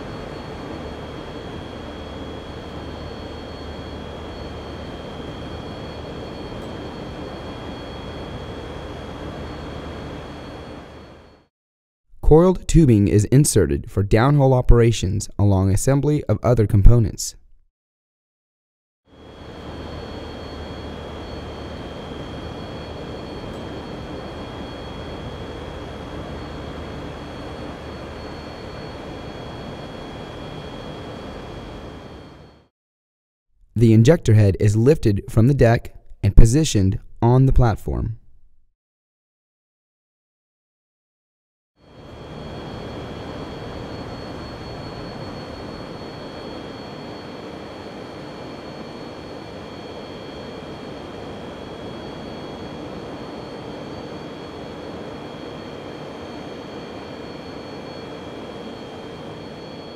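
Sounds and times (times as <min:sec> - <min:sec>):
high-pitched whine: 0:00.0 - 0:11.5, 0:19.1 - 0:32.7, 0:33.8 - 0:37.8, 0:41.8 - 0:59.9
industrial machinery drone: 0:00.0 - 0:11.5, 0:19.1 - 0:32.7, 0:41.9 - 0:59.9.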